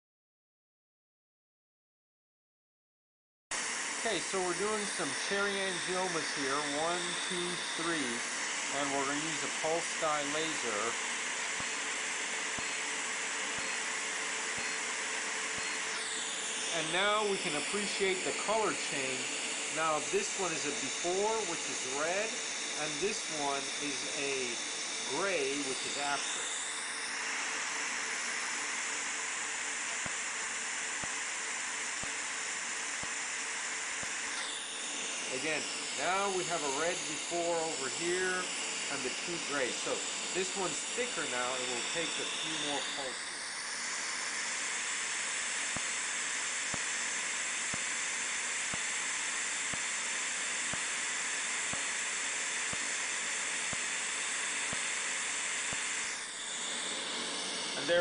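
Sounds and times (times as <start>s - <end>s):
laser hiss: 4.0s - 26.4s, 29.9s - 43.2s, 44.1s - 56.1s
laser pulse clicks: 11.5s - 16.0s, 29.9s - 30.2s, 31.0s - 31.2s, 32.0s - 32.2s, 33.0s - 33.2s, 45.7s - 46.0s, 48.7s - 49.0s, 49.6s - 49.9s, 50.7s - 51.0s, 51.7s - 52.0s, 52.7s - 53.0s, 53.7s - 53.9s, 55.7s - 55.9s.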